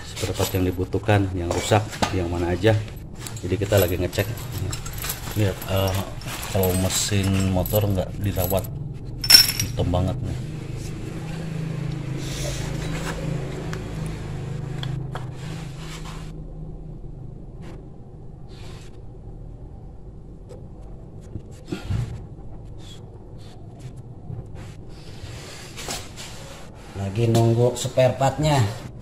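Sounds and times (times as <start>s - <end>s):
engine humming: 1.6s - 25.5s
tools clicking on engine case: 3.2s - 8.6s.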